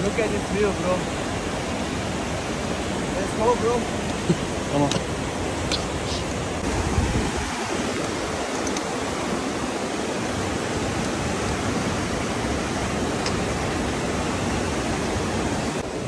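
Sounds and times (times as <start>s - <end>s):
mountain stream rushing: 0.0s - 16.0s.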